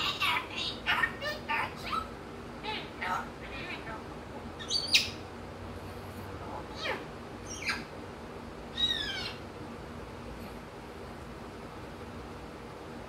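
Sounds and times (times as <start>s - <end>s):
parrot calls and whistles: 0.0s - 3.9s, 4.6s - 5.2s, 6.7s - 7.9s, 8.7s - 9.5s.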